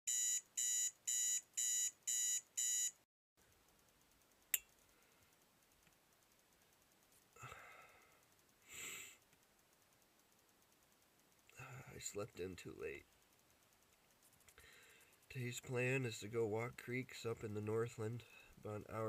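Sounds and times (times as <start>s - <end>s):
digital alarm clock beeping: 0.1s - 3.0s
man breathing while stretching: 7.4s - 9.2s.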